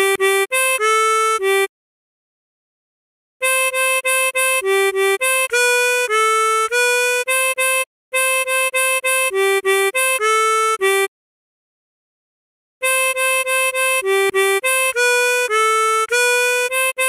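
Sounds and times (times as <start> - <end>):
harmonica melody: 0.0 - 1.7, 3.4 - 11.1, 12.8 - 17.0.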